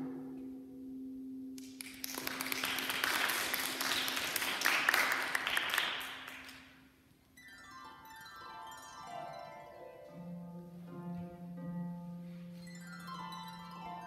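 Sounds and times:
audience applauding: 0:01.6 - 0:06.7
harp notes: 0:06.4 - 0:14.0.

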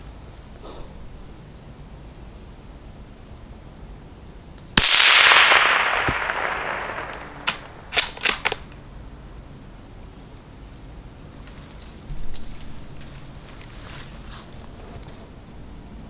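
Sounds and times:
sharp clicks: 0:04.5 - 0:08.8
suppressed rifle shot with echo: 0:04.8 - 0:08.7.

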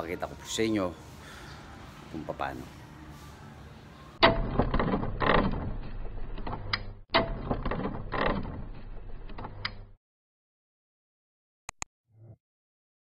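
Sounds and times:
mechanical clattering with knocks: 0:04.2 - 0:09.9.

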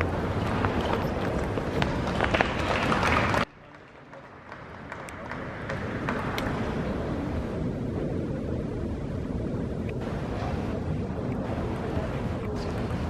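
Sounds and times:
low rumbling sports hall ambience: 0:00.0 - 0:13.0.

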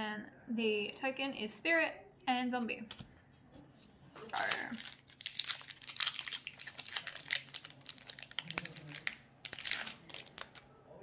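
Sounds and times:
foil wrapper crinkling: 0:04.3 - 0:10.6.

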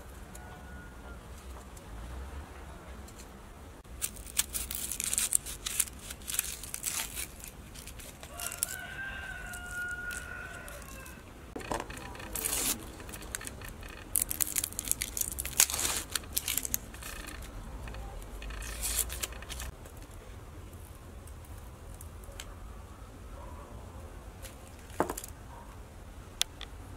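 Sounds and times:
rooster crowing: 0:00.3 - 0:01.2, 0:08.2 - 0:12.8
onion skin crackling and tearing: 0:03.8 - 0:22.5
knife scraping onion: 0:04.1 - 0:08.9, 0:11.8 - 0:19.7.

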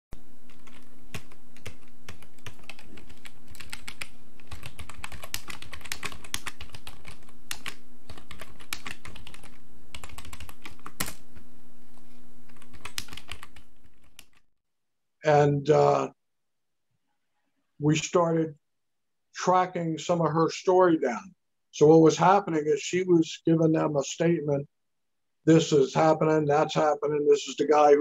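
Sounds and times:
faint low hum: 0:00.2 - 0:14.4.

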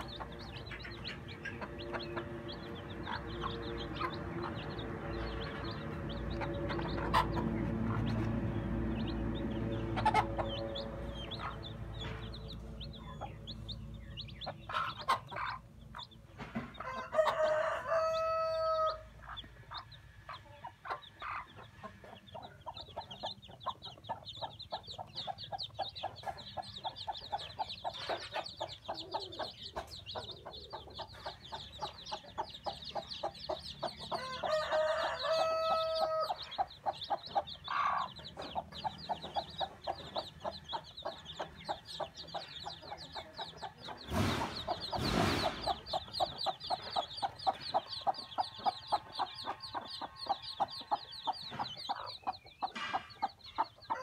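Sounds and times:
chicks peeping: 0:00.0 - 0:54.0
hen clucking: 0:00.0 - 0:54.0
rooster crowing: 0:16.8 - 0:19.1, 0:34.2 - 0:36.4.

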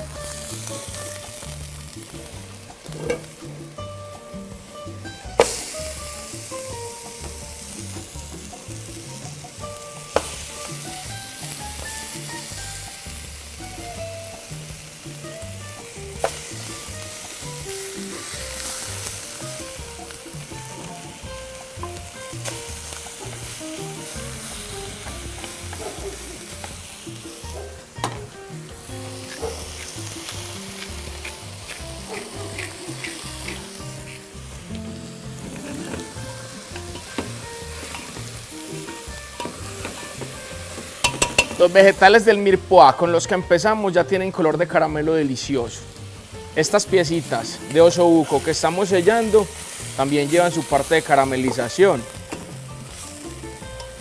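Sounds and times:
faint background music: 0:00.0 - 0:54.0
meat sizzling in a frying pan: 0:00.0 - 0:54.0.

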